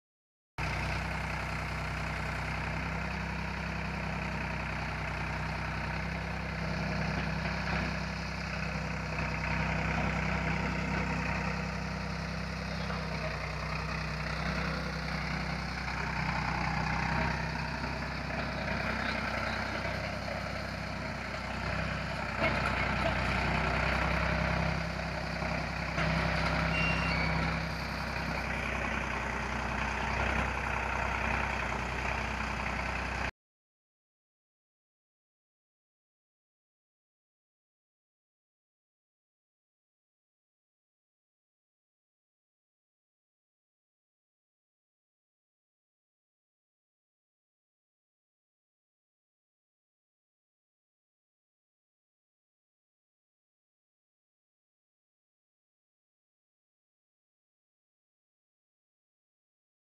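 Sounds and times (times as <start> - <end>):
tractor diesel engine under load: 0.6 - 33.3.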